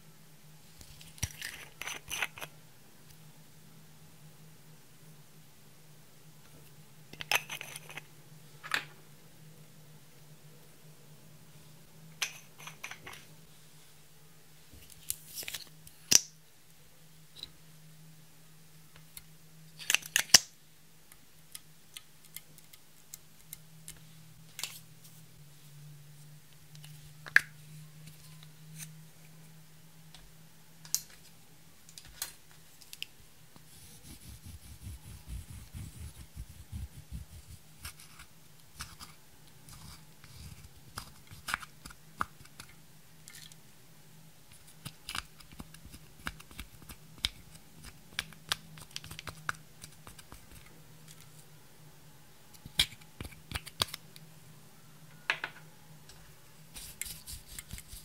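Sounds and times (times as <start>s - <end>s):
scratching and crumbling powder: 33.6s - 42.7s.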